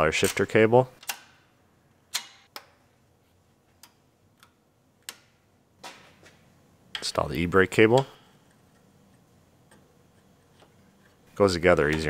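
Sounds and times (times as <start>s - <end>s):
sharp plastic clips clicking: 0.2s - 1.4s.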